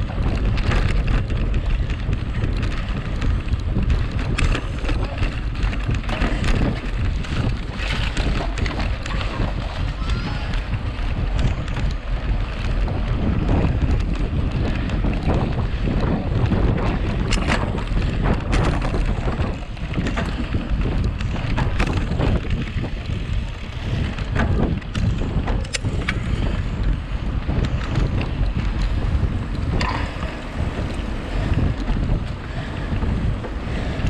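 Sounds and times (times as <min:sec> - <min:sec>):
bike clattering over gravel: 0:00.0 - 0:34.0
bike tyre noise: 0:00.0 - 0:34.0
wind rushing over microphone: 0:00.0 - 0:34.0.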